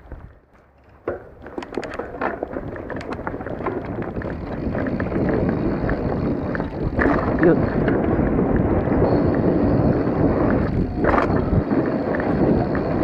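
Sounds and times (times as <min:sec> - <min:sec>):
bike clicks and rattles: 0:00.0 - 0:13.0
tyres rushing on dirt: 0:00.0 - 0:13.0
wind on microphone: 0:01.6 - 0:13.0.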